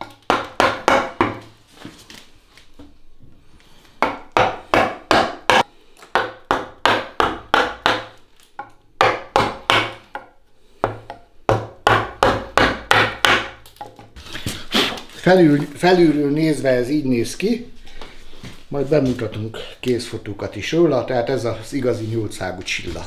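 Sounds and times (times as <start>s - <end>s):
wooden mallet striking chisel: 0.0s - 1.5s, 4.0s - 14.1s.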